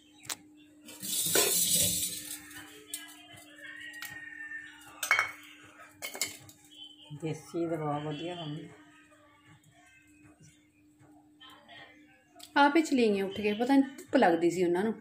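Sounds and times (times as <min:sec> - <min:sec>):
spoon scraping metal strainer: 0:01.0 - 0:02.5.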